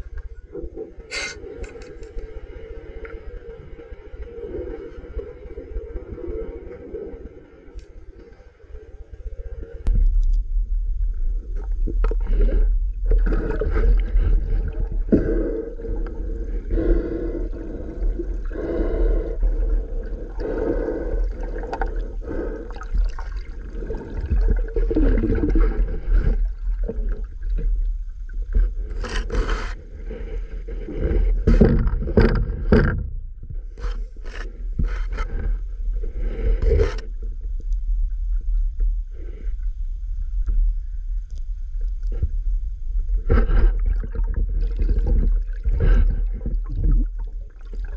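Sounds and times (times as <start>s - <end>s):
low underwater rumble: 0.0s - 47.9s
water rubbing against camera housing: 28.9s - 29.8s.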